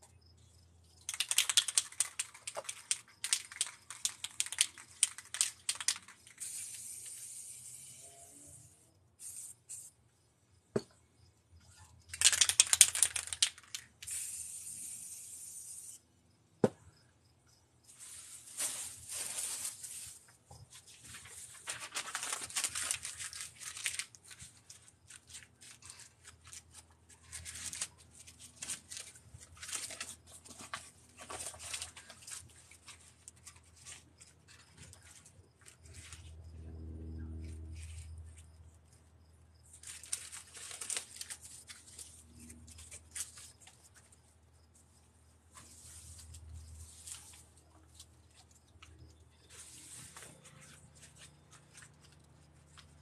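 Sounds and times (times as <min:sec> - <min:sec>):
sharp clicks: 0:01.1 - 0:06.3
spray-paint can hissing: 0:06.4 - 0:08.0, 0:09.2 - 0:09.9, 0:14.0 - 0:16.0.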